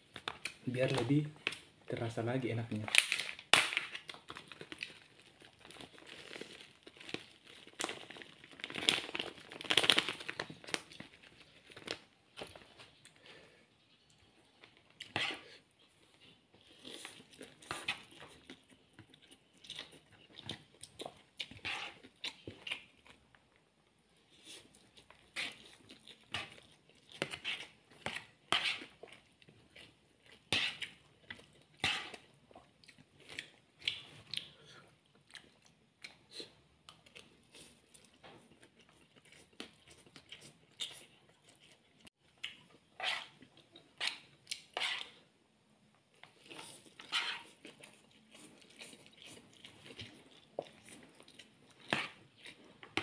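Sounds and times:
noodles being slurped and chewed: 0:04.1 - 0:13.2, 0:14.7 - 0:23.4, 0:24.2 - 0:45.3, 0:46.1 - 0:53.0
fork against plate: 0:44.0 - 0:45.2, 0:46.6 - 0:47.6.

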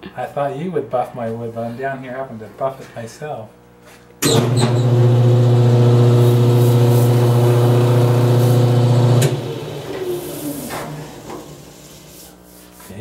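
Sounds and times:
lathe motor humming: 0:04.4 - 0:12.1
buffing hiss: 0:06.1 - 0:08.8, 0:09.6 - 0:12.8.

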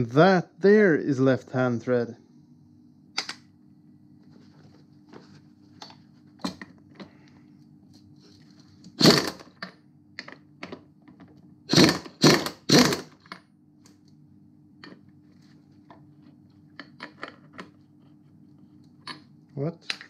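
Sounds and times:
pneumatic impact wrench hammering: 0:09.0 - 0:09.5, 0:11.7 - 0:13.2.

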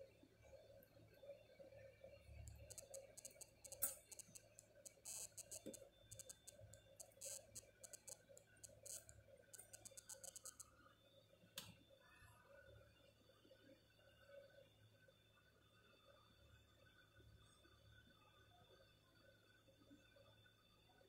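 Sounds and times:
soldering iron crackling: 0:02.5 - 0:10.6.

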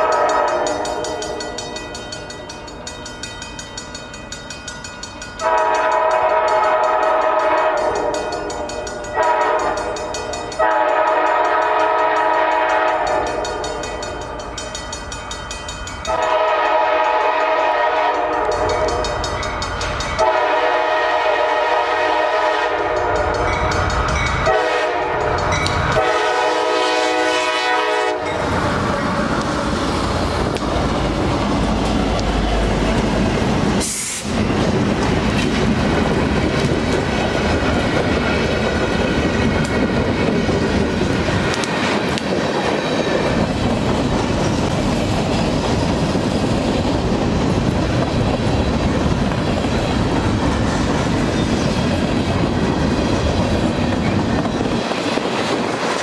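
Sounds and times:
train horn blowing: 0:00.0 - 0:01.4, 0:05.4 - 0:08.4, 0:09.1 - 0:13.7, 0:16.1 - 0:19.0, 0:20.2 - 0:23.4, 0:24.4 - 0:25.3, 0:25.9 - 0:28.4
train wheels rumbling on rails: 0:00.0 - 0:56.0.

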